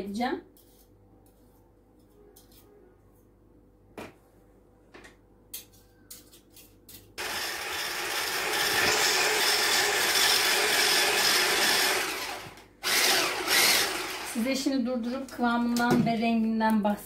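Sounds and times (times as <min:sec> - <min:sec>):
electric hand mixer running: 0:07.2 - 0:14.5.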